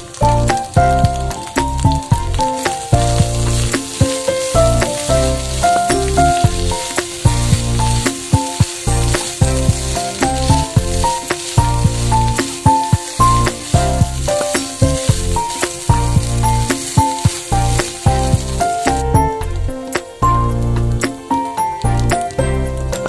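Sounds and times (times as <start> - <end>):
meat sizzling in a pan: 0.0 - 23.0
music with a steady beat: 0.0 - 23.0.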